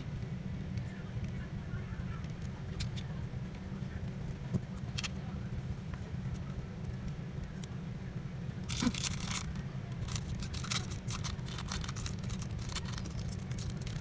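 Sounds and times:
steady low hum: 0:00.0 - 0:14.0
plastic film crinkling: 0:08.7 - 0:14.0.

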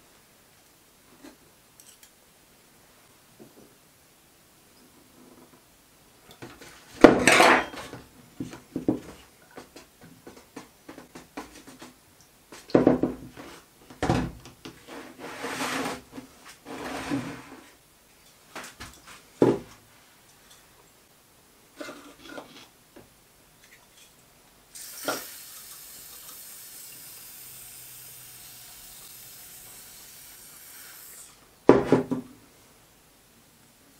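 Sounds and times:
metal part and plastic tubs clattering: 0:06.4 - 0:08.0.

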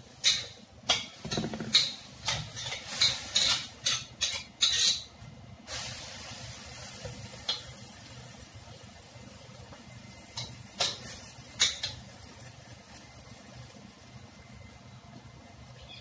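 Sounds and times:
metal spatula scraping a wok: 0:00.0 - 0:07.8
pan sizzling: 0:00.0 - 0:16.0.

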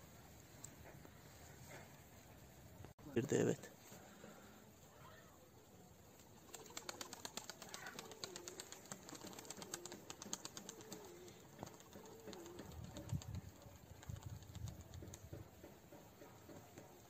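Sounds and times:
pigeon cooing: 0:06.2 - 0:15.2.

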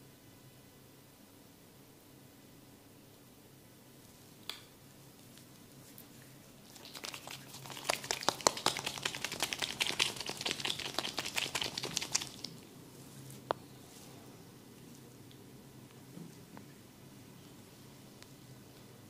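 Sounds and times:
crackling of hair massage: 0:05.2 - 0:13.3.

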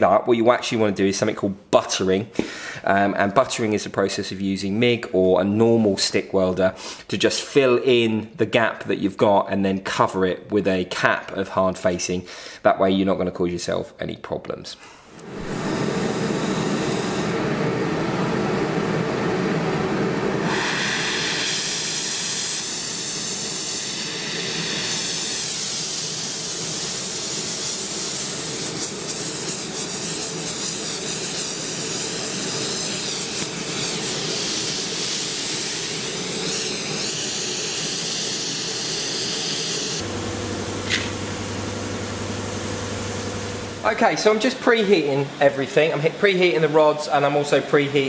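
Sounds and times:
gas torch flame hissing: 0:15.0 - 0:48.0.

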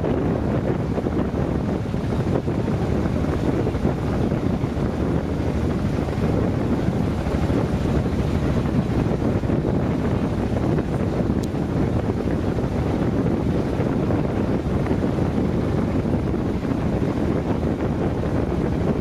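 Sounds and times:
wind buffeting the microphone: 0:00.0 - 0:19.0.

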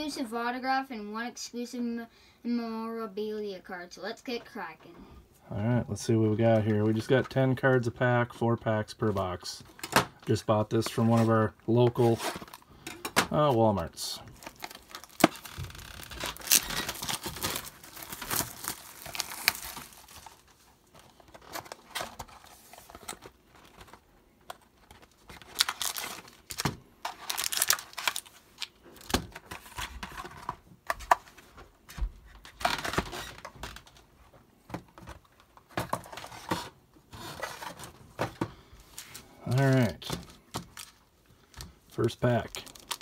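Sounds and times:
foil packs crinkling: 0:14.2 - 0:31.4, 0:38.7 - 0:43.0
plastic wrapping tearing: 0:14.3 - 0:20.5, 0:25.0 - 0:30.0, 0:42.0 - 0:43.0.

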